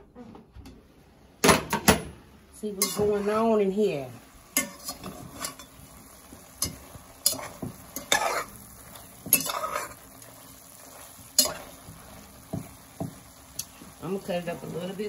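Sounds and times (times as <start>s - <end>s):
chicken sizzling: 2.3s - 15.0s
spatula scraping a pot: 4.6s - 5.8s, 6.6s - 13.8s.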